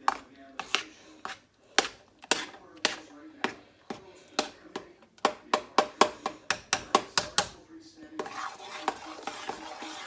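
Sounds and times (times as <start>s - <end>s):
utensil scraping metal pan: 0.0s - 3.6s, 8.2s - 10.0s
utensil knocking against pan: 4.4s - 7.6s.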